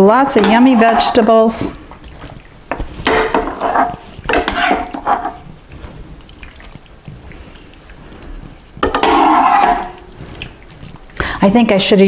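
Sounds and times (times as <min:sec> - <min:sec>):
metal scoop scraping a skillet: 0:00.0 - 0:01.8, 0:02.7 - 0:05.9, 0:08.8 - 0:10.4.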